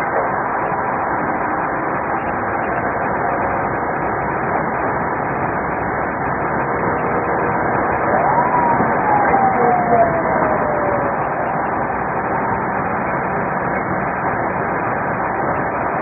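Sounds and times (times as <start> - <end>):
road and engine noise inside car: 0.0 - 16.0
siren rising in pitch: 7.1 - 14.1.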